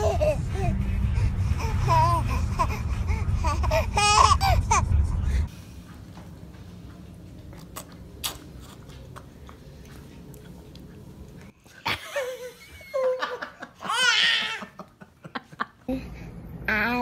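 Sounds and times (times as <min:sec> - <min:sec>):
low room hum: 0:00.0 - 0:17.0
baby squealing: 0:03.4 - 0:04.8
baby mouth clicks chewing: 0:07.6 - 0:09.6.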